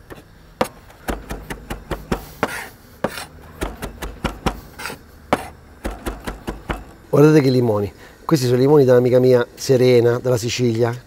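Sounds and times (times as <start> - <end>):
knife scraping board: 0.1 - 6.9
knife chopping herbs on cutting board: 0.1 - 7.0.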